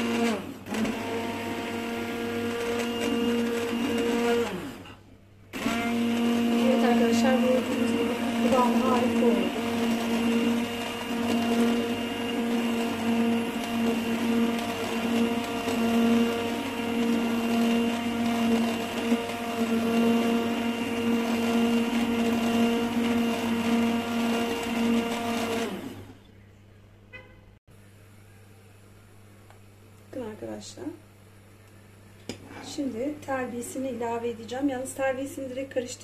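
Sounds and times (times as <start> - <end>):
immersion blender motor humming: 0.0 - 26.2.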